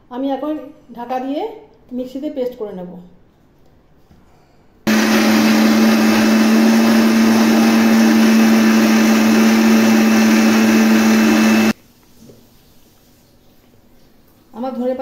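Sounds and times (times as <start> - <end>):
mixer grinder whirring: 4.9 - 11.8.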